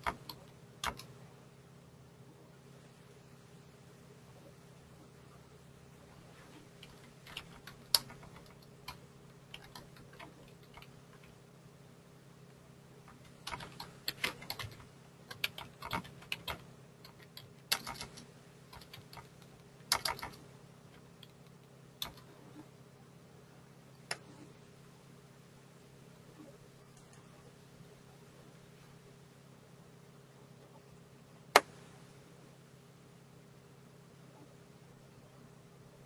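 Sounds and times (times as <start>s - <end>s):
computer keyboard typing: 0.0s - 1.2s, 6.8s - 11.4s, 13.1s - 22.3s
faint low hum: 0.0s - 36.0s.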